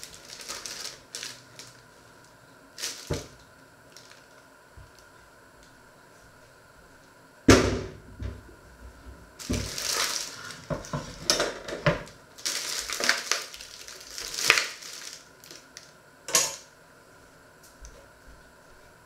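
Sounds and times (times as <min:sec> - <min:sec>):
plastic tray rustling: 0:00.0 - 0:01.9, 0:09.4 - 0:11.8, 0:12.4 - 0:15.6.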